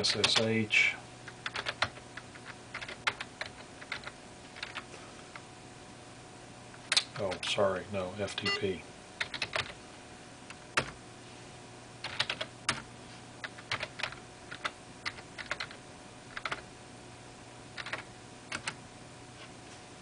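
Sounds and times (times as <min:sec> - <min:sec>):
typing on computer keyboard: 0:01.4 - 0:04.8, 0:09.2 - 0:09.8, 0:12.0 - 0:12.8, 0:13.4 - 0:16.6, 0:17.8 - 0:18.8.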